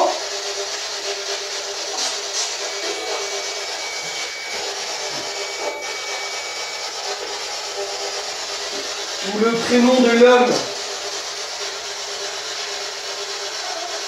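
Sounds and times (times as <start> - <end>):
radio static hiss: 1.9 - 6.0
thin high steady tone: 2.7 - 10.6.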